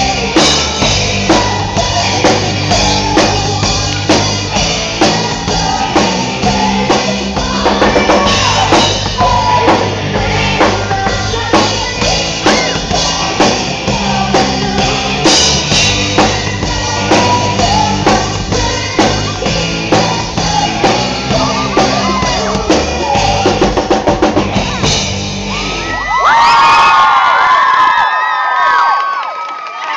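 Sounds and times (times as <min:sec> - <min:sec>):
woman singing: 0:00.0 - 0:25.0
live pop-rock band: 0:00.0 - 0:27.0
audience screaming and cheering: 0:00.0 - 0:29.9.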